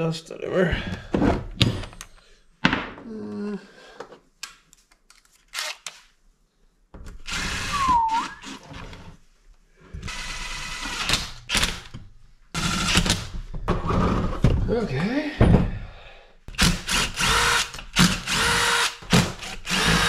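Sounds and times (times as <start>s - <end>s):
cordless drill motor running: 7.3s - 8.6s, 10.0s - 11.1s, 16.6s - 20.0s.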